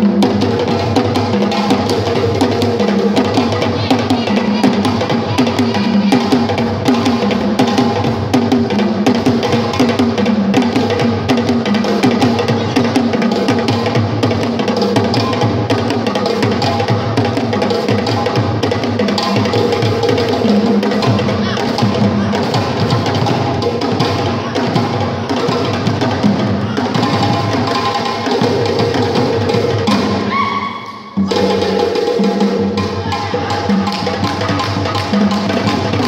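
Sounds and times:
djembe drumming: 0:00.0 - 0:36.0.

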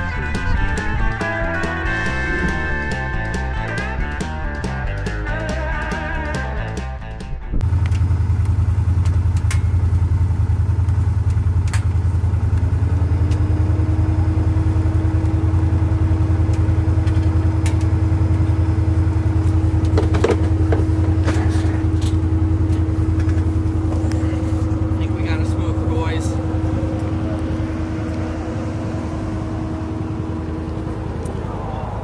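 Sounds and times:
high steady whine: 0:00.0 - 0:05.8
engine idling: 0:00.0 - 0:32.0.

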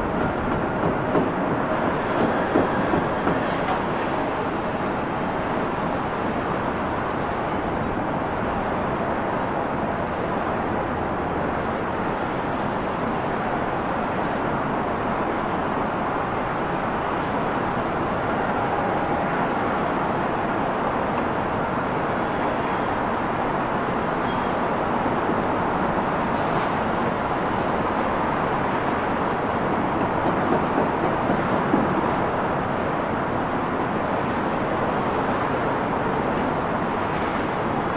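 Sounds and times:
jet engines at takeoff: 0:00.0 - 0:37.9.

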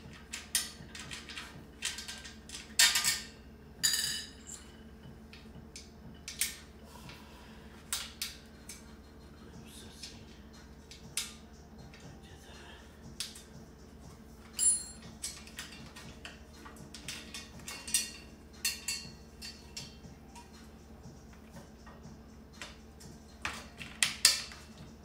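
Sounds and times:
metal parts clicking and clinking: 0:00.0 - 0:06.6, 0:14.4 - 0:20.6, 0:23.4 - 0:24.8.

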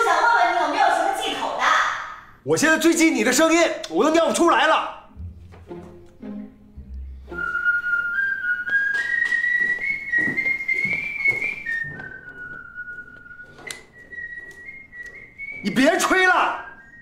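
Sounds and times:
person whistling rising note: 0:07.0 - 0:15.8.

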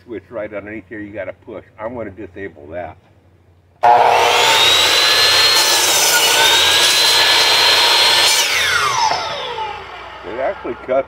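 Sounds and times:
miter saw whining: 0:03.8 - 0:11.0.

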